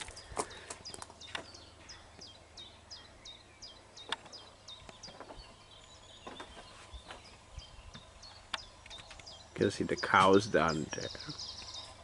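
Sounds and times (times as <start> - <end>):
songbird chirping: 0.0 - 12.0.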